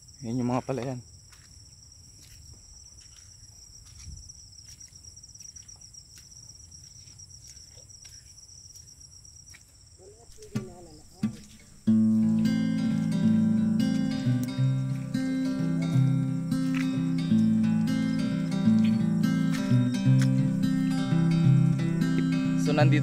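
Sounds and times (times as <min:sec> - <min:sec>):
insects trilling: 0:00.0 - 0:23.0
footsteps on muddy track: 0:00.7 - 0:23.0
acoustic guitar music: 0:10.3 - 0:23.0.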